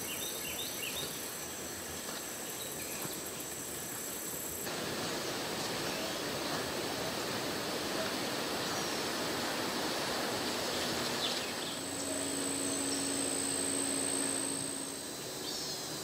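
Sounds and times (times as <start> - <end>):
woodland ambience hiss: 0.0 - 16.0
high-pitched insect buzz: 8.5 - 16.0.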